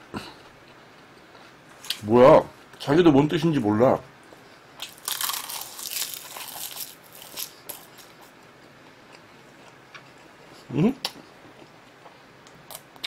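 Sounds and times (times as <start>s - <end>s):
seaweed crunching while chewed: 4.8s - 8.1s.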